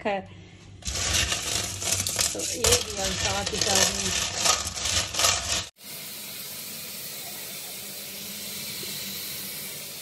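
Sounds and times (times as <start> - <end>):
pebbles clattering in a tray: 0.8 - 5.7.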